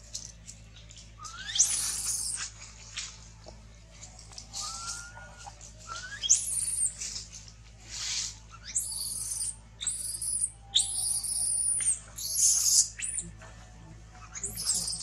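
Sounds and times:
baby monkey screaming: 1.2 - 2.5, 4.5 - 7.0, 8.6 - 13.2, 14.2 - 15.0.

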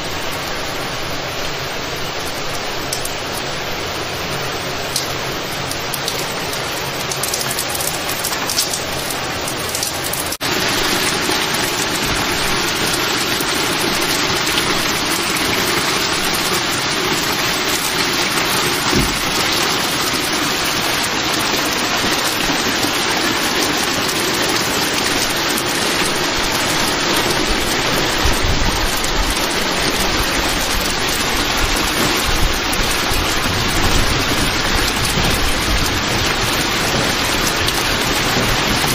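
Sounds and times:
heavy rain pouring: 0.0 - 38.9
low rumbles: 25.0 - 38.9.

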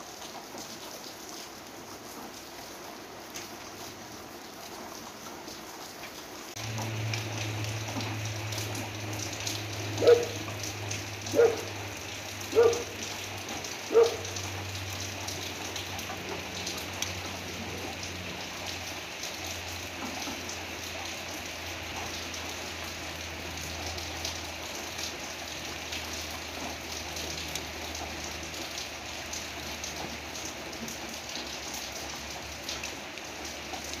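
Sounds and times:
rain falling on leaves: 0.0 - 34.0
dog barking: 10.0 - 10.5, 11.2 - 11.8, 12.5 - 13.0, 13.8 - 14.4.

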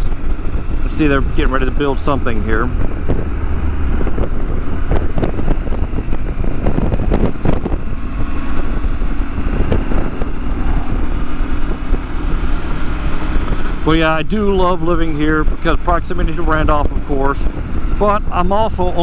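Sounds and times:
motorcycle engine running: 0.0 - 19.0
wind rushing over microphone: 0.0 - 19.0.

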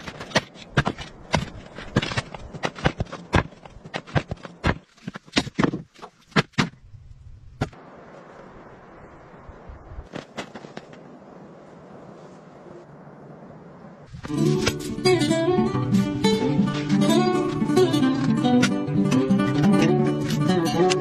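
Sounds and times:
firewood logs clunking: 0.0 - 6.9.

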